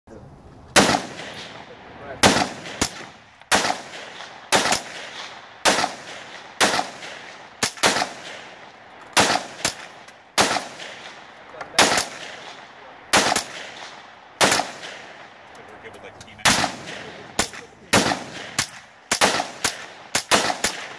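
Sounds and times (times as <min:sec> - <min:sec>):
handgun shots with echo: 0:02.2 - 0:08.5, 0:16.5 - 0:20.9.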